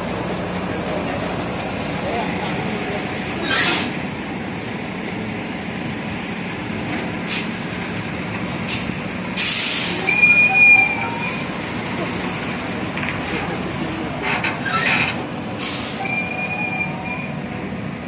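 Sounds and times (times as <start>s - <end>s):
diesel truck engine running: 0.0s - 18.0s
air brake hiss: 7.3s - 7.5s, 8.7s - 10.2s, 15.6s - 17.0s
short air hisses: 7.3s - 7.5s, 8.7s - 10.1s, 15.6s - 16.4s
brief high squeal: 15.6s - 17.4s.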